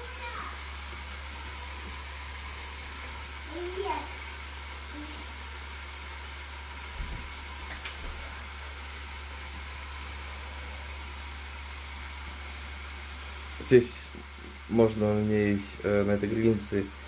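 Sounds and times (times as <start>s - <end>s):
steaks sizzling on a contact grill: 0.0s - 17.0s.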